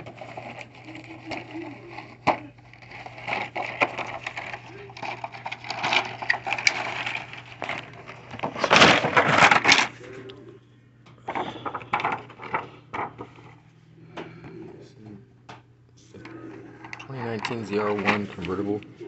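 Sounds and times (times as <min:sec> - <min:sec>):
cardboard box rustling: 0:00.0 - 0:10.1
plastic tray crackling: 0:00.0 - 0:10.4, 0:11.3 - 0:13.6.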